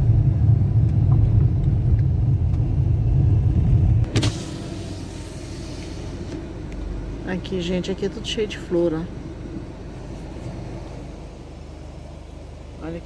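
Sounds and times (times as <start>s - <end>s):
car road rumble: 0.0s - 13.0s
outside air hiss: 4.1s - 13.0s.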